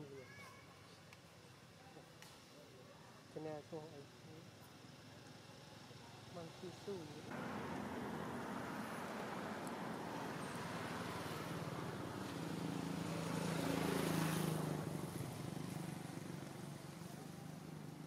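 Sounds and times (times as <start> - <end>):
vehicle engine passing by: 7.3 - 18.0.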